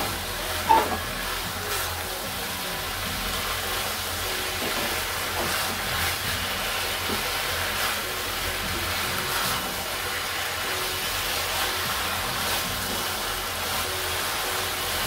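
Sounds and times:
spatula scraping a pan: 0.0 - 2.0
vegetables sizzling in a pan: 0.0 - 15.0.

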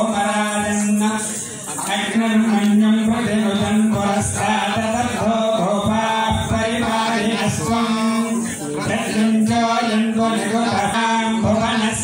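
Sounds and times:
man chanting through a microphone: 0.0 - 12.0
men chanting together: 0.0 - 12.0.

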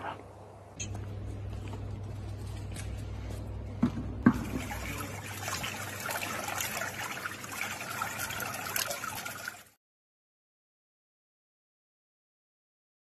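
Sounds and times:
steady low hum: 0.0 - 8.5
water filling plastic container: 3.8 - 9.8.

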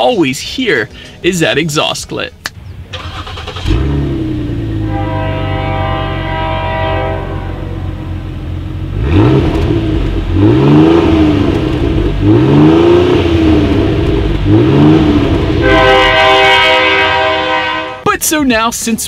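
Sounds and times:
car engine revving: 2.7 - 17.9
steady horn-like tone: 4.7 - 8.6, 15.5 - 18.1.

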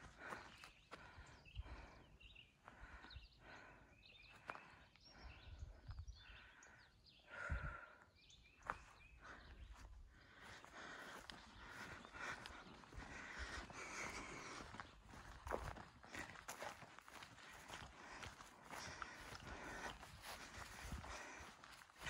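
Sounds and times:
footsteps on a trail: 0.0 - 6.7, 7.3 - 22.0
bird chirps: 0.4 - 7.3.

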